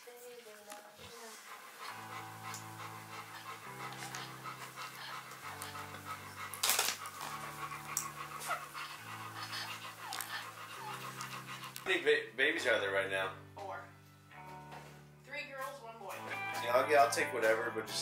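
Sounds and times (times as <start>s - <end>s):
soft background music: 0.0s - 18.0s
puppy suckling from bottle: 8.8s - 11.9s.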